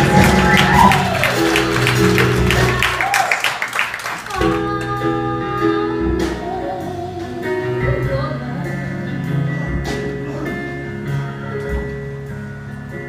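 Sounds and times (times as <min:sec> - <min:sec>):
live pop band playing: 0:00.0 - 0:13.0
woman singing: 0:04.2 - 0:10.6.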